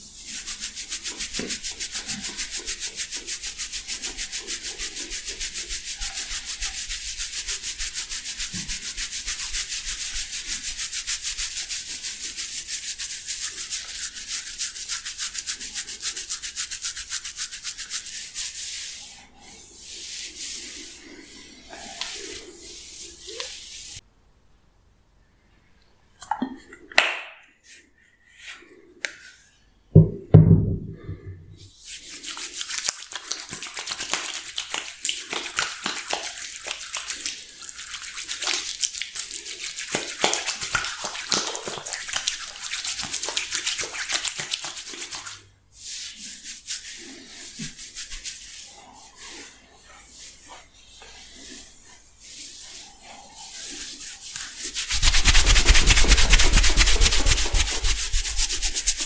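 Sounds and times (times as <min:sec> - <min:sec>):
oiled palms rubbing: 0:00.0 - 0:24.0, 0:30.9 - 0:59.0
low thump: 0:30.0 - 0:31.3
fingers kneading oily hair: 0:46.4 - 0:59.0.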